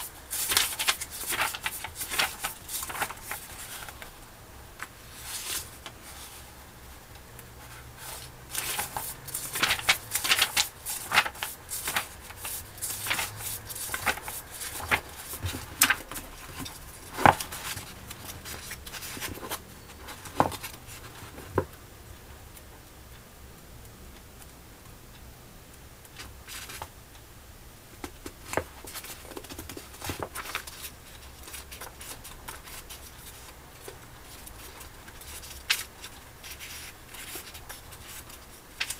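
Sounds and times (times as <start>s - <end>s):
book pages turning: 0.0s - 4.1s, 4.8s - 6.6s, 7.7s - 21.7s, 28.0s - 38.9s.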